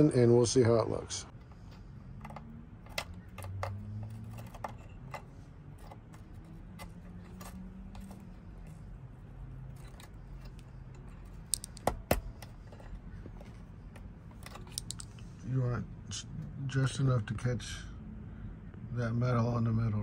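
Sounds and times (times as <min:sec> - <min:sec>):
small plastic parts clicking: 0:01.3 - 0:08.8, 0:09.6 - 0:15.3.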